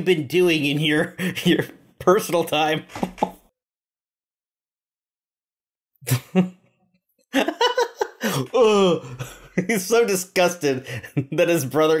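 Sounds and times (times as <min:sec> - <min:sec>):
person laughing: 0:06.0 - 0:06.6, 0:07.4 - 0:10.1, 0:10.8 - 0:11.6.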